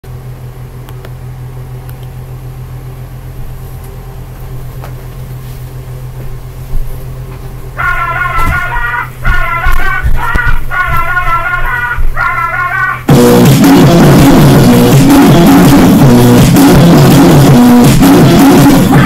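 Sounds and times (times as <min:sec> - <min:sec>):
low electrical hum: 0:00.0 - 0:13.5
music: 0:07.9 - 0:19.0.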